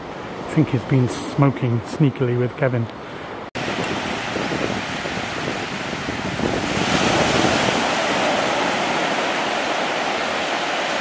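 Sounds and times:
small waves breaking on shore: 0:03.6 - 0:11.0.

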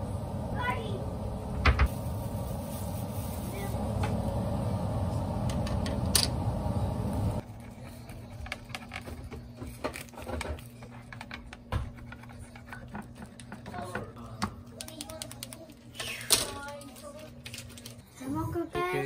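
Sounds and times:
steady low hum: 0:00.0 - 0:14.8.

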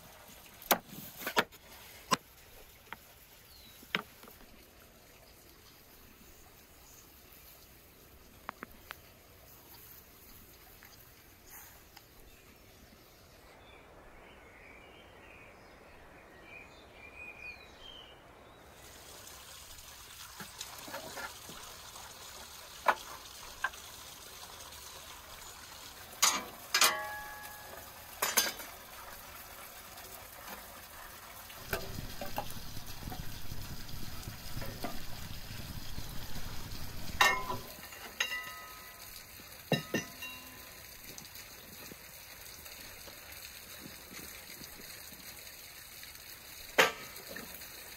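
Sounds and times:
logs clanking in metal firebox: 0:26.2 - 0:29.1, 0:31.6 - 0:33.3, 0:34.4 - 0:35.3, 0:37.0 - 0:40.7, 0:46.8 - 0:47.6
wood fire crackling: 0:28.5 - 0:39.5.

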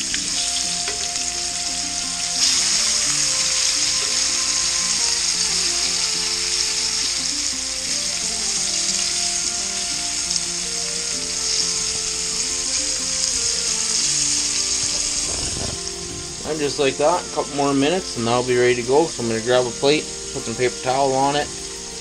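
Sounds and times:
meat frying in oil: 0:00.0 - 0:22.0.

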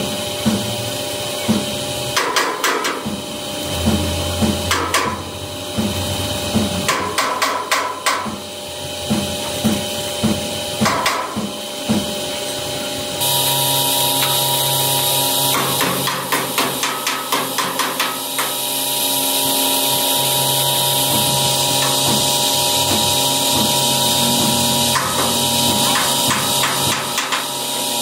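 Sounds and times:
hammer striking metal: 0:02.2 - 0:03.2, 0:03.8 - 0:08.4, 0:09.1 - 0:12.2, 0:15.5 - 0:18.6, 0:24.4 - 0:27.5
steady low beat: 0:03.0 - 0:06.9, 0:08.2 - 0:12.4.

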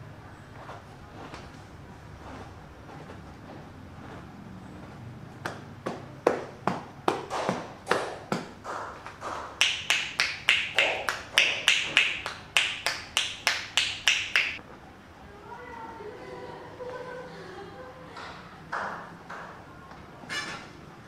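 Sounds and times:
hands slapping rhythmically: 0:05.4 - 0:14.6, 0:18.2 - 0:19.6.

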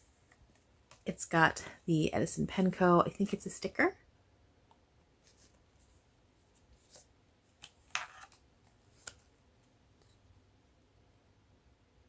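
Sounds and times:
cards rustling: 0:06.5 - 0:09.4.

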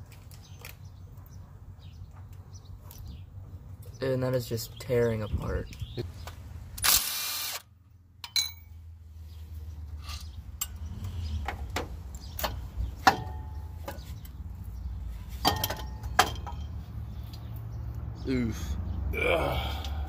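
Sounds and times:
cordless power tool burst: 0:06.8 - 0:07.6.

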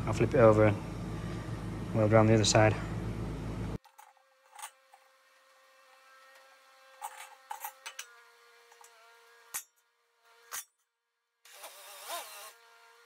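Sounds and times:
faint steady hum: 0:00.0 - 0:08.5
metallic knocks and scrapes: 0:06.9 - 0:09.7.

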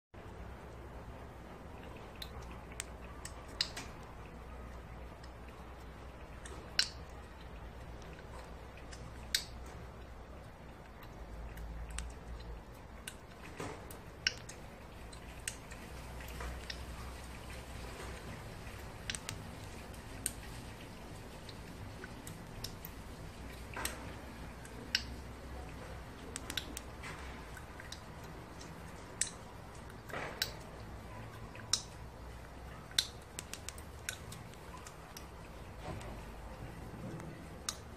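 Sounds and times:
chipmunk gnawing crunchy snaps: 0:01.4 - 0:37.9.

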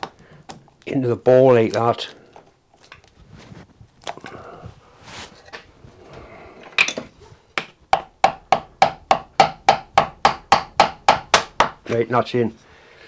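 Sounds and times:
wooden handle tapping piston: 0:07.6 - 0:11.8.

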